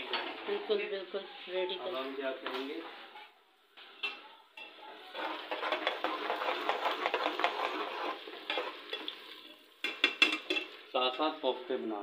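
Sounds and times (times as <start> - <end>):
metal ladle scraping pot: 4.0 - 10.8
onions frying in oil: 4.6 - 11.9.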